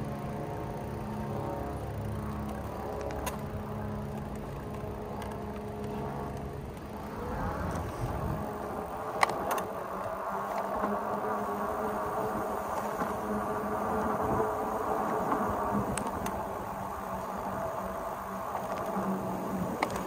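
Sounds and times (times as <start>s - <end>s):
electric bike motor whining: 0.0s - 20.0s
sharp clicks: 2.4s - 7.1s.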